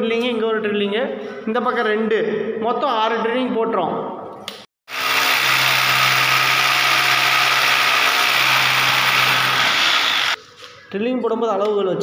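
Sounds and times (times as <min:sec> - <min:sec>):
electric drill boring into wall: 0:04.9 - 0:10.4.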